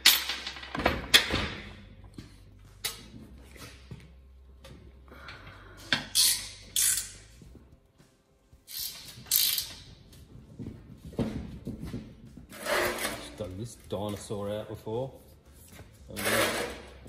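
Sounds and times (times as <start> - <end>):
ratchet spanner clicking: 8.7 - 9.8.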